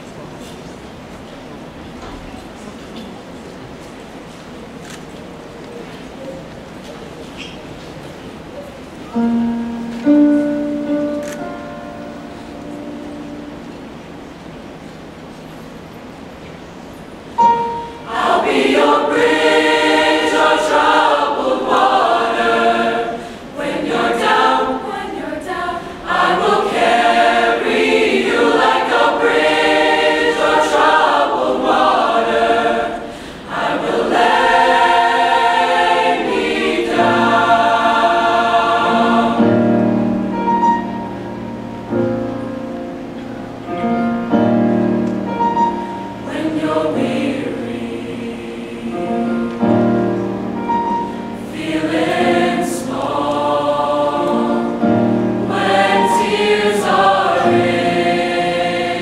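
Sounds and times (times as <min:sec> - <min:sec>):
choir singing: 0:17.4 - 0:42.3, 0:43.8 - 0:59.0.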